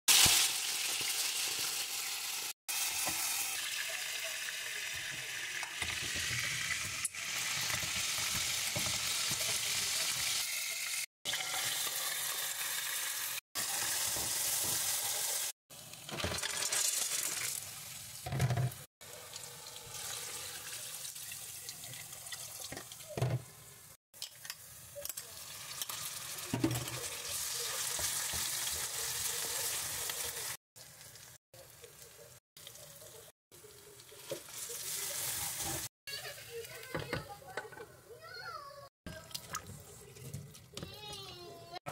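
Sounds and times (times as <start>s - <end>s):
food sizzling in hot oil: 0.1s - 18.3s, 19.0s - 36.6s
utensils stirring and scraping pan: 33.7s - 37.9s.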